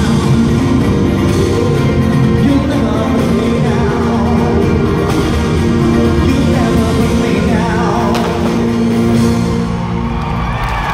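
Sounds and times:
singer's voice: 0.0 - 9.9
band with steady bass line: 0.0 - 10.7.

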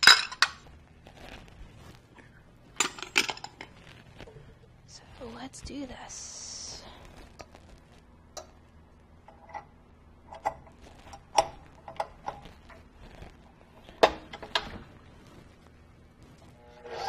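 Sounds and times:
utensils clinking on steel bowl: 0.0 - 0.6, 2.8 - 3.8.

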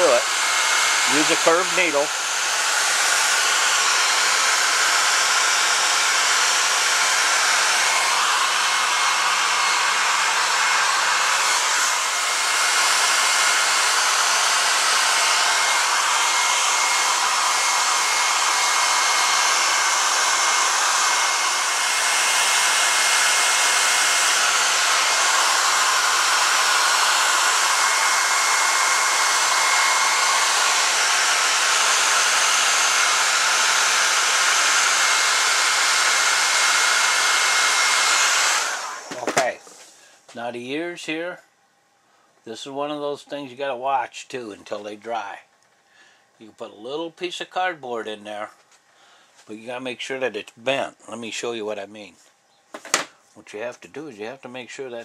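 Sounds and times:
hair dryer blowing: 0.0 - 40.0.

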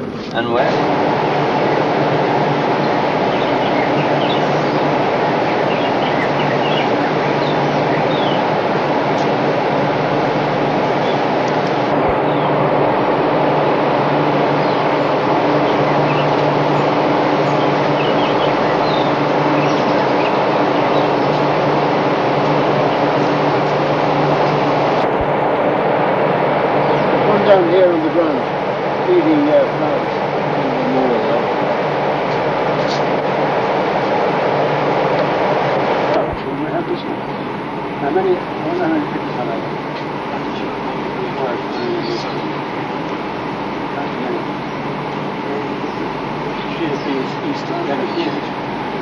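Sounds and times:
birds chirping: 0.0 - 49.0
engine rumbling: 0.0 - 49.0
loud steady rushing noise: 0.0 - 49.0
faint bird chirps: 5.5 - 8.5.

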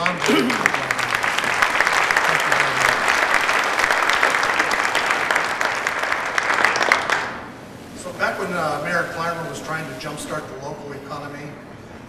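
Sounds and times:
audience applauding: 0.0 - 7.6.

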